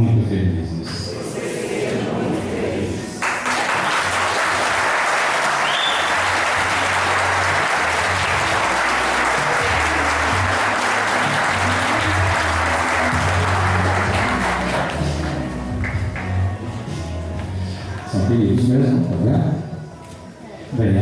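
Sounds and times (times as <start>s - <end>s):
background music: 0.0s - 21.0s
crowd applauding: 3.2s - 16.5s.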